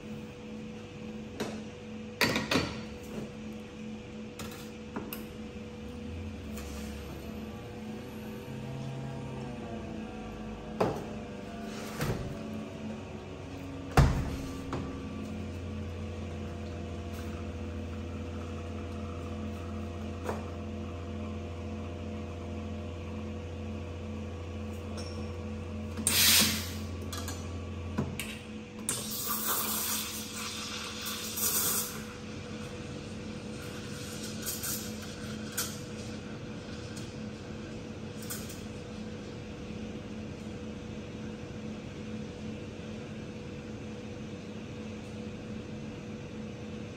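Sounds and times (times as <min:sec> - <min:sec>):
espresso machine pump humming: 0:04.8 - 0:41.6.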